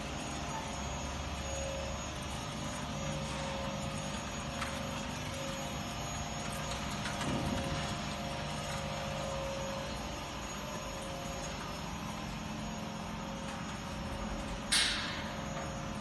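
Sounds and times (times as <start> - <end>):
packing machine humming: 0.0 - 16.0.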